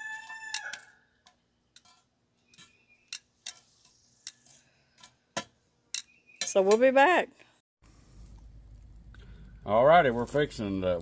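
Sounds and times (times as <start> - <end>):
rooster crowing: 0.0 - 1.1
metal tongs clicking on charcoal: 0.1 - 6.8.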